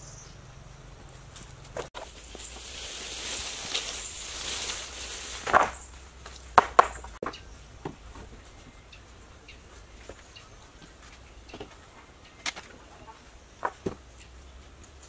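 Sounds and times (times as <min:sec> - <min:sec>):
wooden poles knocking together: 0:01.6 - 0:02.8, 0:05.4 - 0:08.4, 0:10.8 - 0:15.0.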